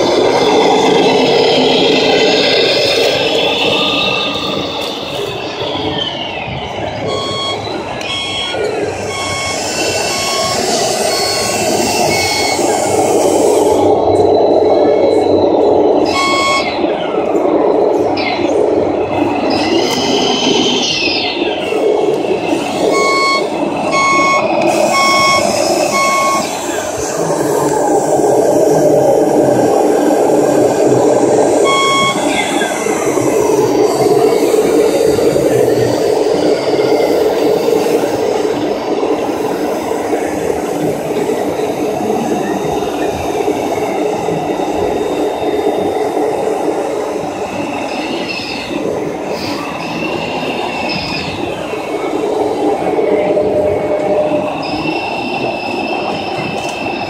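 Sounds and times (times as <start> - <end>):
crowded hall din: 0.0 - 57.0
reversing beeper beeps: 4.8 - 17.2, 22.4 - 27.2, 31.4 - 34.0, 49.4 - 57.0
short electronic beep: 7.0 - 12.8, 16.0 - 16.8, 22.9 - 26.6, 31.6 - 32.6.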